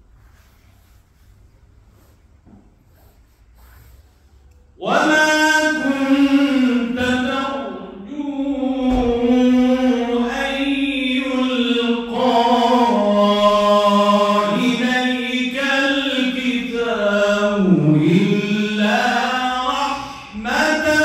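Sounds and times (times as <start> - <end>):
man chanting melodically: 4.8 - 21.0.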